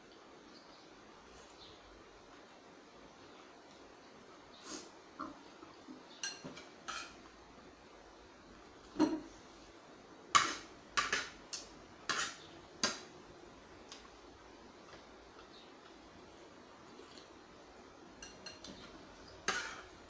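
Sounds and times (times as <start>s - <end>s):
cutlery clinking on a plate: 6.1s - 7.2s, 9.0s - 9.3s, 10.4s - 13.1s, 18.2s - 19.9s.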